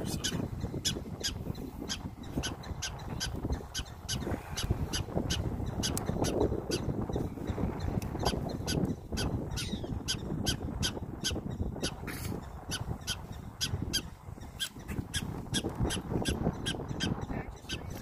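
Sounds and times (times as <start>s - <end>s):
prairie dogs chirping: 0.0s - 18.0s.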